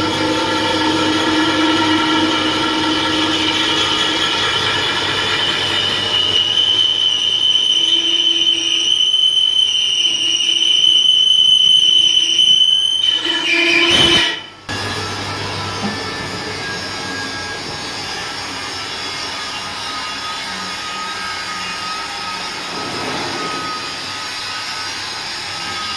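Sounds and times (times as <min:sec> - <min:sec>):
lathe humming: 0:00.0 - 0:09.0
lathe tool screeching on metal: 0:00.0 - 0:25.9.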